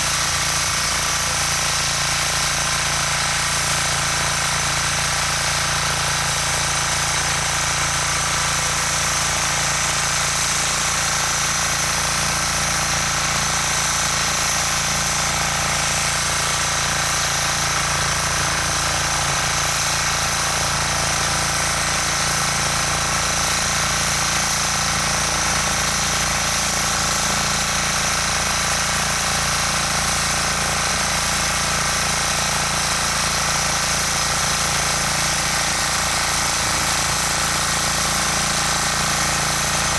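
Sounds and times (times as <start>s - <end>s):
tiller engine running: 0.0s - 39.9s.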